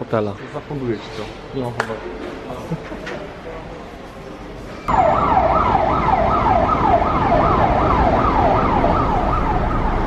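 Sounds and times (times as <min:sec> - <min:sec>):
emergency siren yelping: 0:04.9 - 0:10.0
low traffic rumble: 0:04.9 - 0:10.0.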